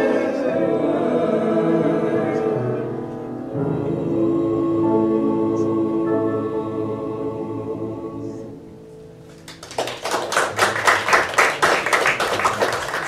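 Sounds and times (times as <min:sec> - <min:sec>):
choir holding a chord: 0:00.0 - 0:09.1
congregation applauding: 0:09.3 - 0:13.0.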